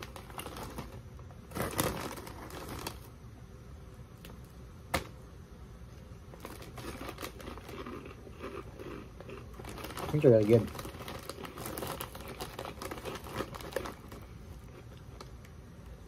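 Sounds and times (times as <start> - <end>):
plastic snack bag crinkling: 0.0 - 3.1, 6.3 - 15.4
crunchy snack chewing: 6.4 - 15.3.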